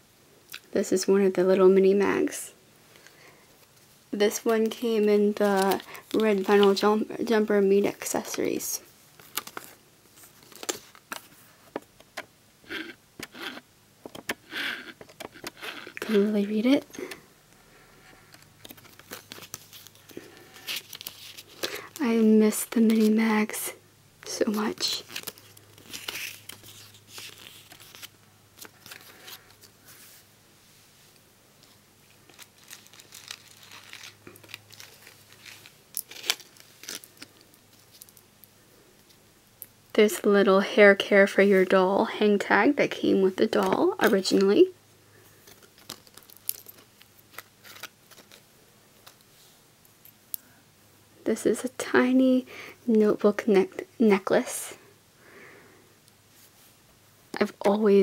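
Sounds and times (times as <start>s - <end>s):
paper rustling: 5.4s - 6.8s, 18.2s - 21.8s, 24.6s - 30.2s, 31.6s - 38.1s, 45.3s - 49.3s.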